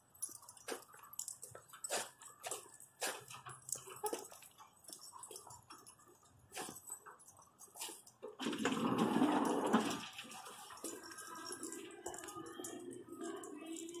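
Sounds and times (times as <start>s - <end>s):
dog clicks and scuffs: 0.2s - 8.6s.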